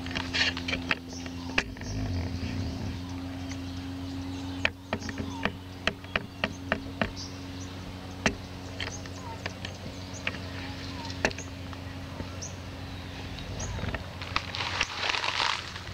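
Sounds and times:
steady low hum: 0.0 - 15.9
bird chirps: 0.7 - 14.0.

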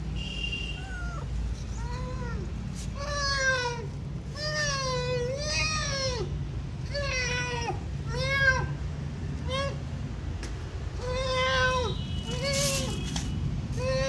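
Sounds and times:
cat meowing: 0.7 - 8.8, 11.0 - 14.0.

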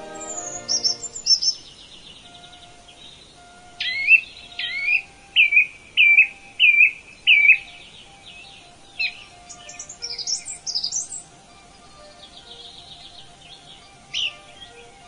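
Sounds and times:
bird whistled phrase: 0.0 - 11.3
songbird chips and trill: 0.0 - 15.0.

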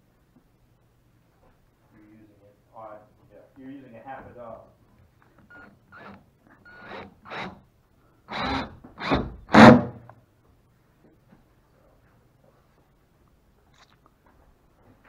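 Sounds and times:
cordless drill driving screw: 5.5 - 7.6, 8.3 - 9.8.

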